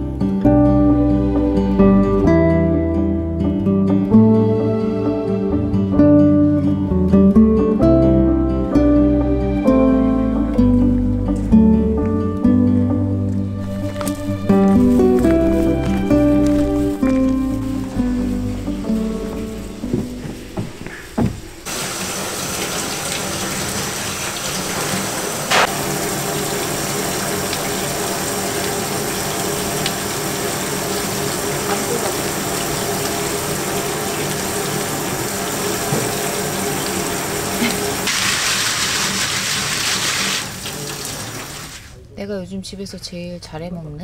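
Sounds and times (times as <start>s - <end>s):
water running from tap into sink: 21.7s - 41.9s.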